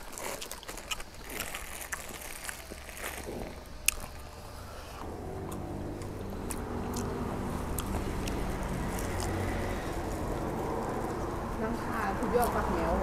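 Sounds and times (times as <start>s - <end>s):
vehicle engine running: 3.3s - 13.0s.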